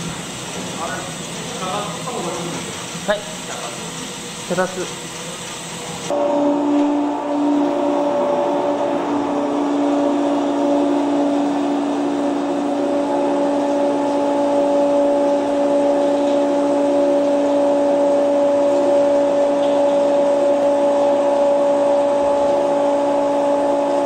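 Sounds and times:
soymilk machine humming: 0:00.0 - 0:24.0.

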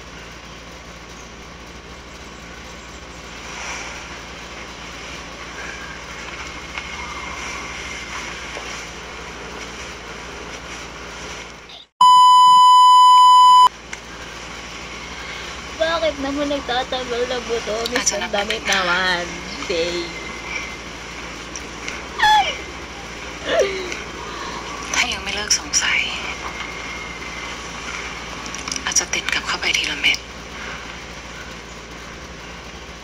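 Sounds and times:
censor bleep: 0:12.0 - 0:13.7.

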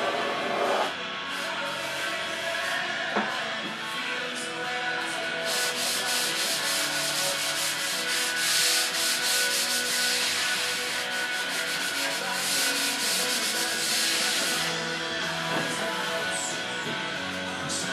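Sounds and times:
sanding block rubbing on foam: 0:05.4 - 0:14.7.

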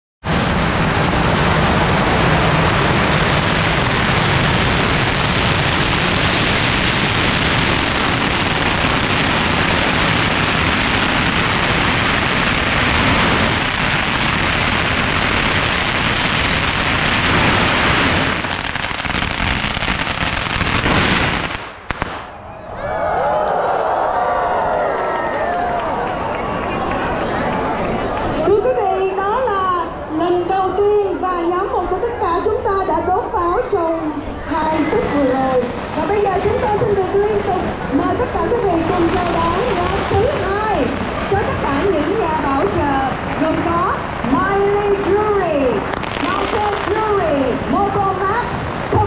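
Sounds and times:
firecrackers crackling: 0:00.2 - 0:22.5, 0:32.2 - 0:49.0.

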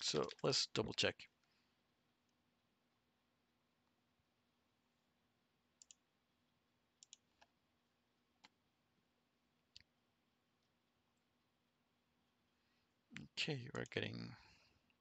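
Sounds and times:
computer mouse clicks: 0:00.2 - 0:00.6, 0:05.8 - 0:06.0, 0:07.0 - 0:07.6.

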